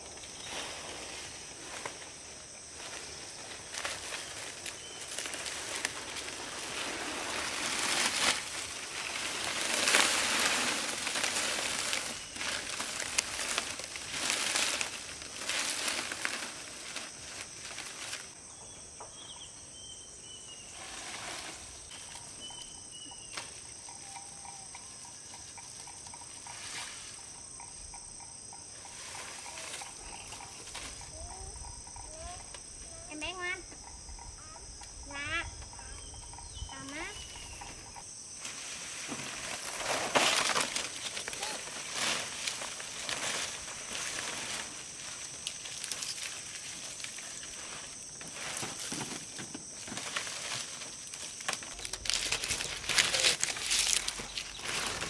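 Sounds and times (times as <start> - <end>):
rustling: 0.0 - 18.4, 36.3 - 55.0
high insect drone: 0.0 - 55.0.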